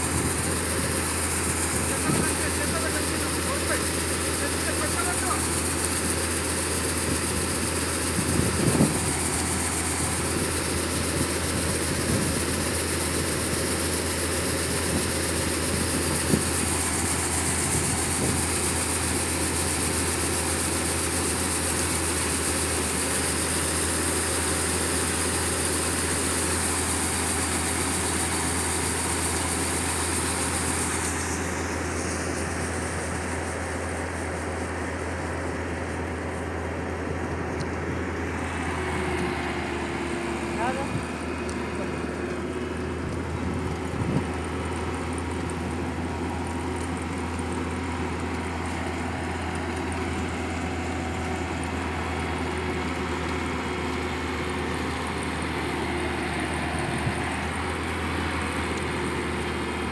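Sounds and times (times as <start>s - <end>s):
combine harvester engine drone: 0.0s - 59.9s.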